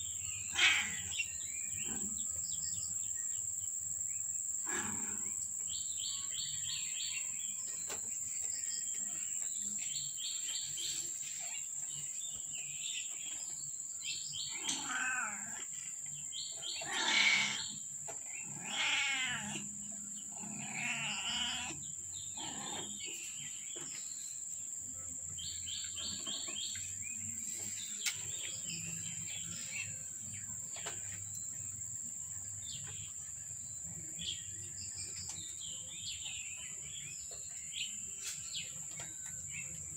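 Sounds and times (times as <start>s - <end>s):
cat meowing: 14.6s - 15.6s, 18.5s - 19.6s.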